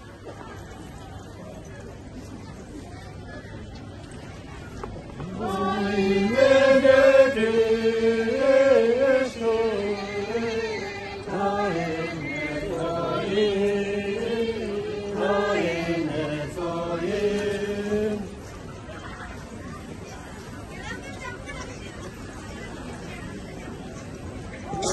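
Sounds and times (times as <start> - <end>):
voices chanting in unison: 5.2 - 18.4.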